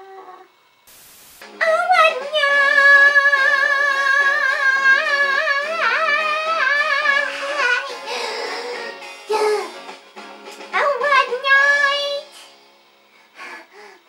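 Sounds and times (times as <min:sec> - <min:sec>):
short hiss: 0:00.9 - 0:01.5.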